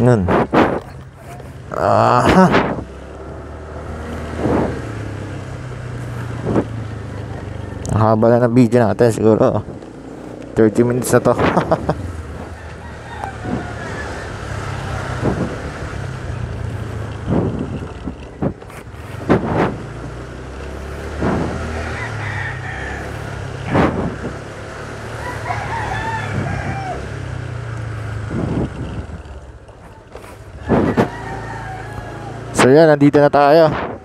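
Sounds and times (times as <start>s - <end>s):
scooter engine running: 0.0s - 34.0s
rooster crowing: 12.4s - 15.2s, 21.4s - 23.6s, 24.8s - 27.6s, 30.6s - 32.6s.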